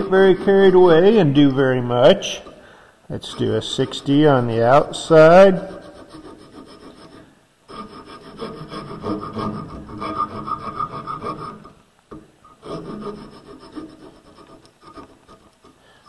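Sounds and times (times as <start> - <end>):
hand file rasping on wood: 0.0 - 1.2, 5.6 - 11.7, 12.6 - 15.8.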